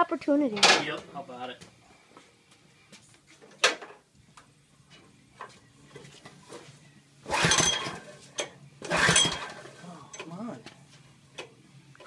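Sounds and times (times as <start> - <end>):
recoil starter rasping whir: 7.2 - 10.4.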